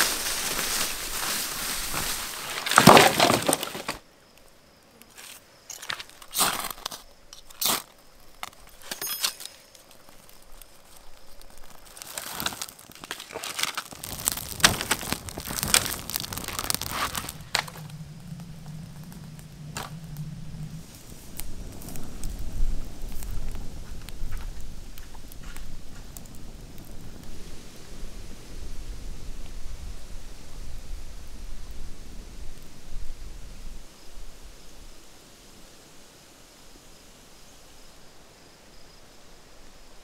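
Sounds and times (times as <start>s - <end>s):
footsteps through undergrowth: 0.0s - 4.0s, 9.7s - 17.9s
campfire crackling: 0.0s - 38.4s
dry twigs snapping: 9.6s - 20.3s.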